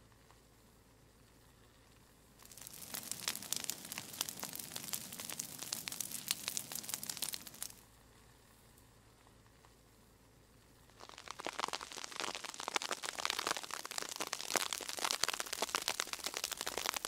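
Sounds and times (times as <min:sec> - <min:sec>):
brush fire crackling: 0:02.4 - 0:07.8, 0:10.8 - 0:17.0.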